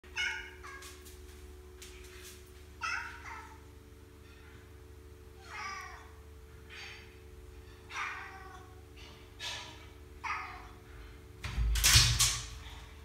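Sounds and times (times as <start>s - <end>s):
cat meowing: 5.4s - 6.2s, 7.9s - 8.8s.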